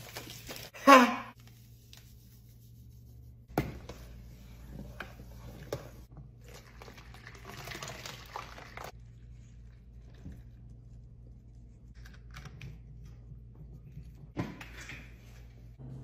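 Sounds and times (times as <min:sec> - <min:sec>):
liquid pouring through a funnel: 0:06.1 - 0:10.6.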